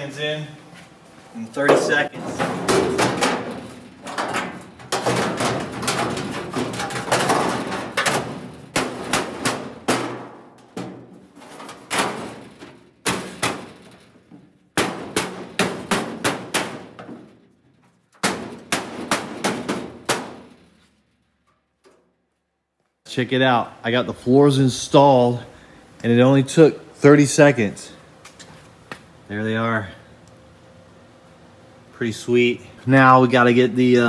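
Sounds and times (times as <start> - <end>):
mallet clanging on sheet metal: 1.6 - 11.2, 14.8 - 17.2, 18.2 - 20.6.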